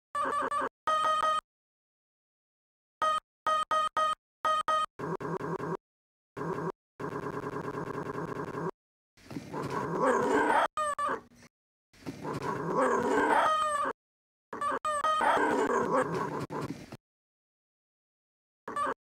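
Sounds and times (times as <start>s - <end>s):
puppy noise samples: 9.3s - 11.3s, 12.1s - 14.0s, 14.6s - 16.9s.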